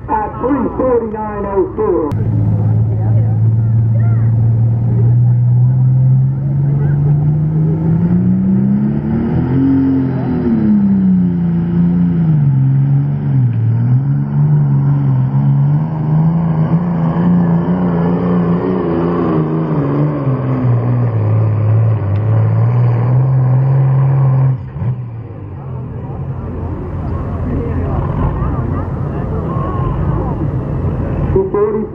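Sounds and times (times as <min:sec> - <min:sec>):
diesel tractor engine at full power: 0:00.0 - 0:31.9.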